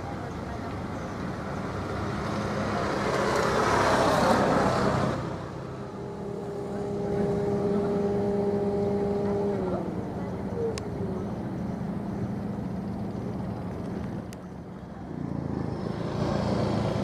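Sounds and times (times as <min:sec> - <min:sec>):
ship's whistle blast: 0:06.0 - 0:09.6.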